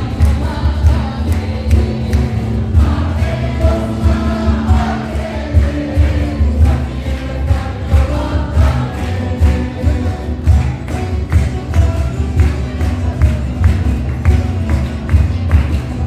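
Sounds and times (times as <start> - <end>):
mixed choir singing: 0.0 - 10.6
guitar and lutes playing: 0.0 - 16.0
handclapping: 0.0 - 16.0.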